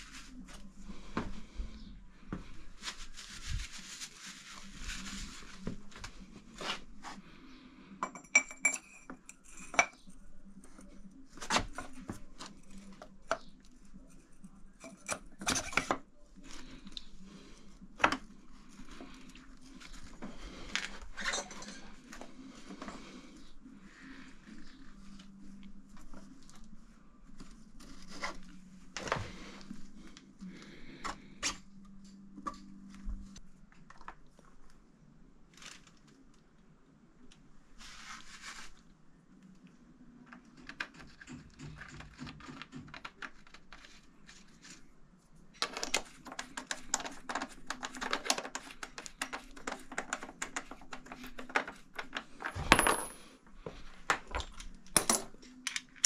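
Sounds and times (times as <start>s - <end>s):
metal tools clinking: 21.2s - 21.9s.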